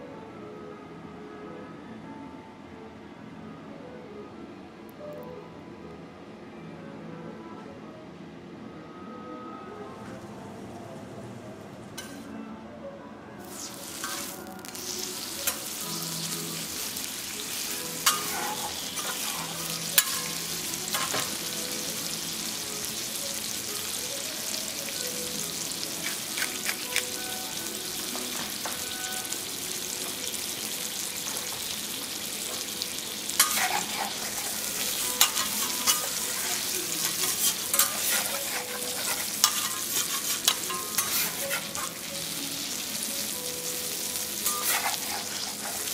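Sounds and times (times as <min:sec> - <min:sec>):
food sizzling on a griddle: 0:13.4 - 0:45.9
metal spatulas clicking on iron: 0:18.0 - 0:19.3, 0:20.0 - 0:21.3, 0:33.4 - 0:41.9.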